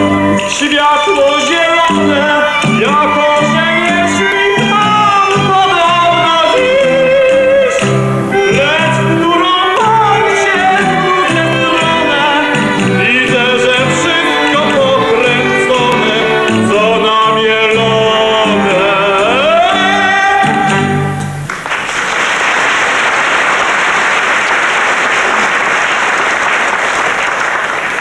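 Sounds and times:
man singing: 0.0s - 21.4s
instrumental accompaniment: 0.0s - 21.6s
audience applause: 21.4s - 28.0s.

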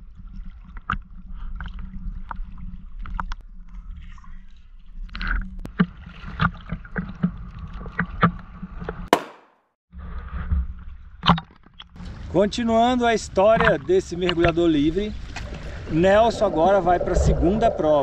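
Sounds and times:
water sloshing and slapping: 0.0s - 9.1s, 13.4s - 18.0s
low wind rumble: 12.0s - 18.0s.

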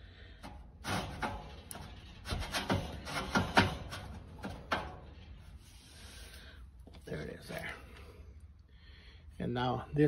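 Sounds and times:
metal parts clunking and rattling: 0.3s - 5.6s.

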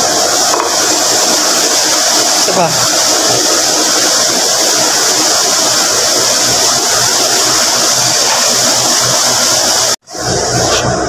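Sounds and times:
loud machinery with high hiss: 0.0s - 11.0s.

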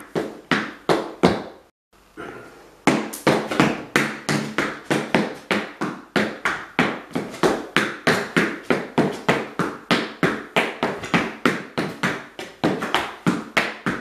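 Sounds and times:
hard shoes clicking on wooden floor: 2.9s - 14.0s.

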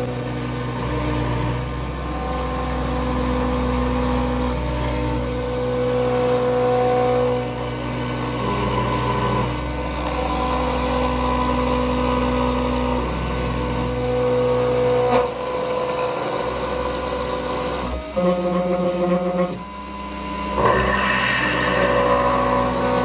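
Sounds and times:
spindle motor running: 0.0s - 23.0s
stepper motors whining: 15.0s - 23.0s.

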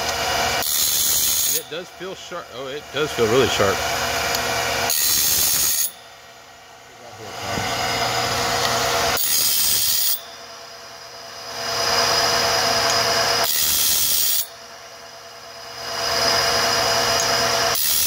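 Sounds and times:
motor hum: 0.0s - 18.0s
grinding wheel rasping on metal: 0.6s - 6.0s, 7.2s - 10.2s.

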